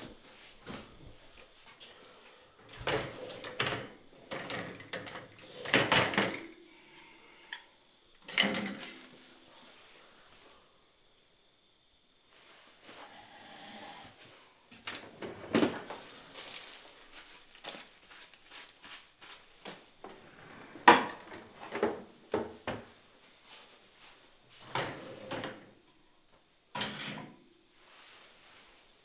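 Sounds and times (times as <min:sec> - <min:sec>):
dishes and cutlery clattering: 0:26.8 - 0:27.3.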